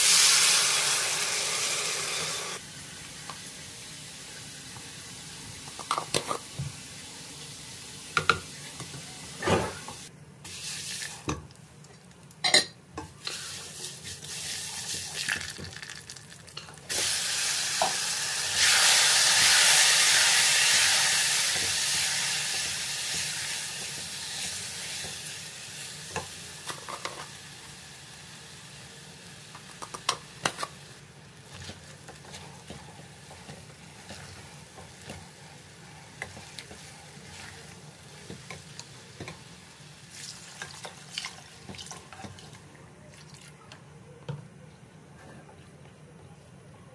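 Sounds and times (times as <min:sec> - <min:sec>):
rice frying sizzle: 0:00.0 - 0:12.5, 0:13.1 - 0:42.7.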